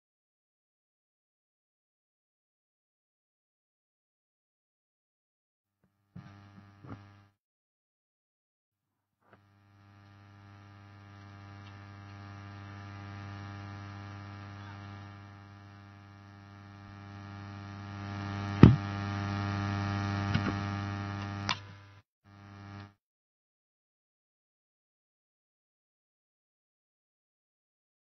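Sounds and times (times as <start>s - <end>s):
electrical mains hum: 6.2s - 7.3s, 9.4s - 23.0s
sharp knock: 18.6s - 18.8s.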